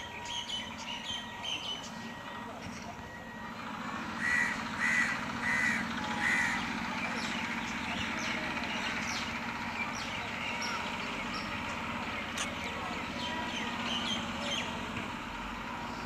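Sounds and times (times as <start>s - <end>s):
crow cawing: 4.2s - 6.7s.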